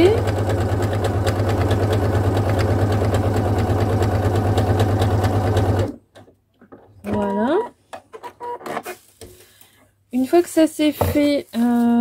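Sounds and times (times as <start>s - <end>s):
sewing machine stitching: 0.0s - 6.0s.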